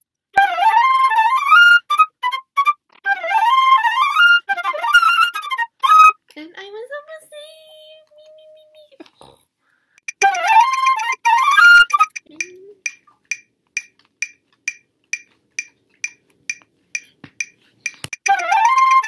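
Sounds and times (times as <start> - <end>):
metronome clicking: 10.0 - 19.0.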